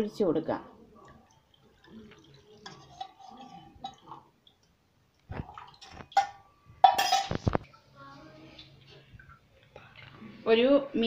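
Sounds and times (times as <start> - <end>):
utensil clinking against pan: 2.6 - 4.0, 6.2 - 7.4.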